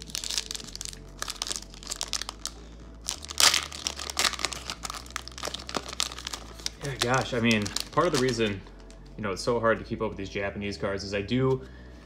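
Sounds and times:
foil wrapper tearing and crinkling: 0.0s - 8.6s.

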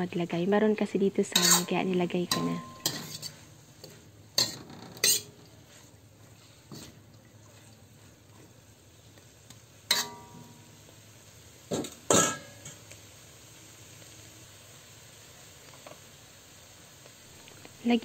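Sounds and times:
faint sizzle: 0.0s - 18.0s
metal spatula scraping a wok: 1.2s - 7.0s, 9.9s - 10.6s.

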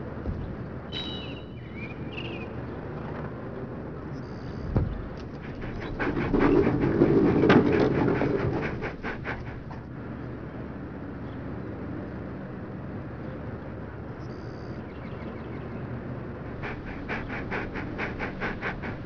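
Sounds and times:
sharp thump: 0.3s - 0.7s
short high chirps: 0.9s - 1.7s
dog panting fast: 4.4s - 9.9s, 16.3s - 19.0s.

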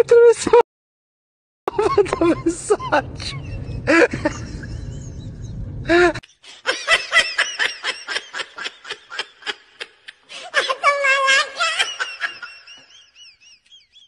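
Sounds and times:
low rumbling noise: 1.7s - 6.2s.

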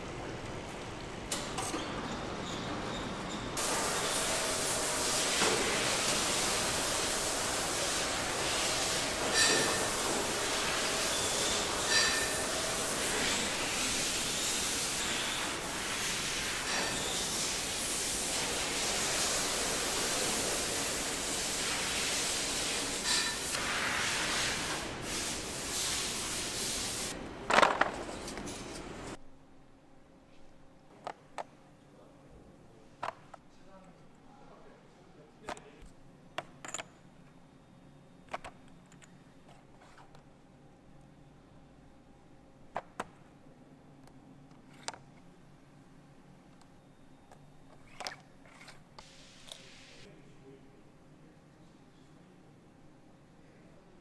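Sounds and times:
factory machine noise: 0.0s - 29.2s
loud steady hiss: 3.6s - 27.2s, 49.0s - 50.6s.

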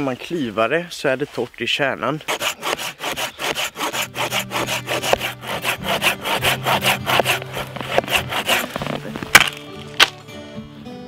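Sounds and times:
hand saw cutting wood: 2.2s - 9.6s
acoustic guitar music: 4.0s - 11.0s
tree trunk cracking: 6.7s - 10.2s.

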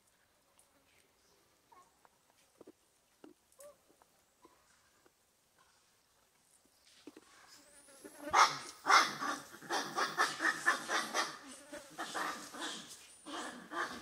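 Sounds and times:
macaques calling: 8.3s - 11.4s.

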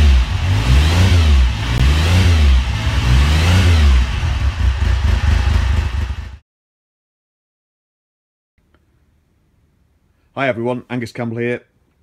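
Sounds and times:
motorcycle engine revving: 0.0s - 6.4s.

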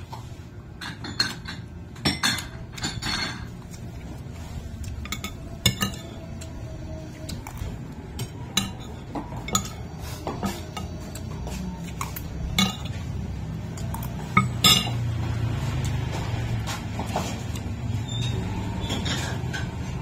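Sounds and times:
cutlery clinking on a plate: 5.0s - 6.2s, 8.2s - 13.1s, 13.8s - 15.1s.

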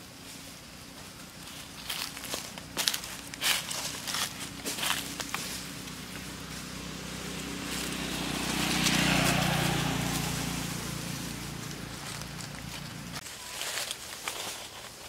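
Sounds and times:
footsteps on dry leaves: 0.0s - 15.0s
vehicle passing by: 1.9s - 13.2s.

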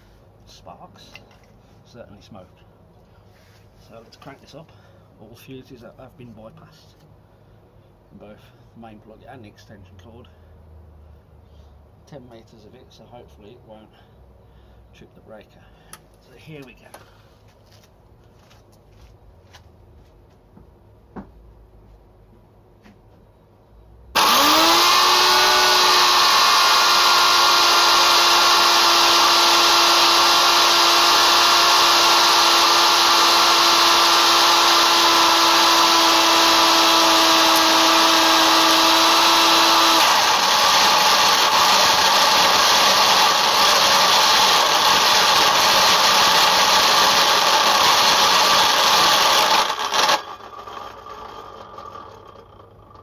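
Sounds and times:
electric saw motor whining: 24.2s - 53.0s.

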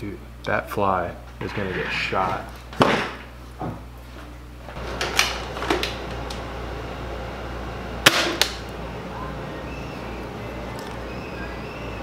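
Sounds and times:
steady hum: 0.0s - 12.0s
small gun shot: 8.1s - 8.4s.

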